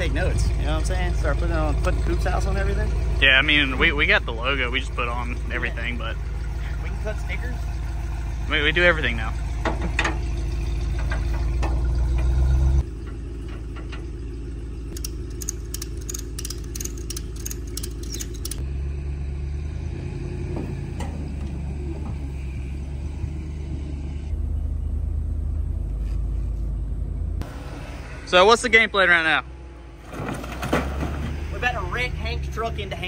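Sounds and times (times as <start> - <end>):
pickup truck engine idling: 0.0 - 18.6.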